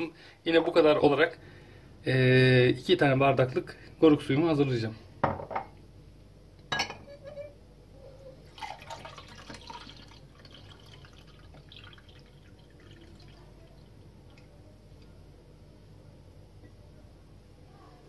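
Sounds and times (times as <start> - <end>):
liquid trickling into glass: 8.4 - 14.5.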